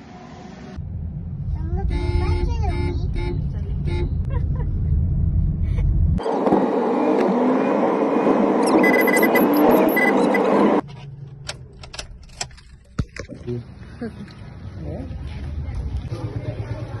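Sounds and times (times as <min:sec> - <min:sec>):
low road rumble: 0:00.0 - 0:17.0
short high beeps: 0:08.6 - 0:10.6.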